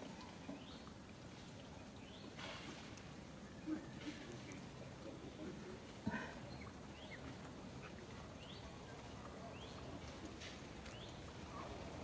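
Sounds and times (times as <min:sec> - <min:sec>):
steady outdoor hiss: 0:00.0 - 0:12.0.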